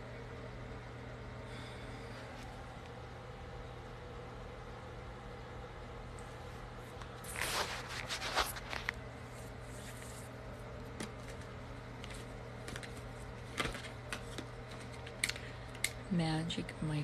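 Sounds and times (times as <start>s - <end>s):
steady low hum: 0.0s - 17.0s
phone rustling against bedding: 6.9s - 15.1s.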